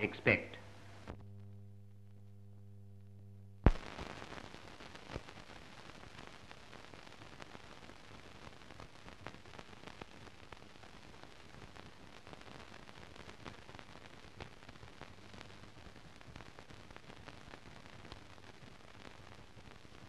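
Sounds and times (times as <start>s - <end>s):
low film soundtrack hum: 0.0s - 3.7s
steady hiss with crackles: 0.0s - 20.0s
sharp pop: 3.6s - 4.4s.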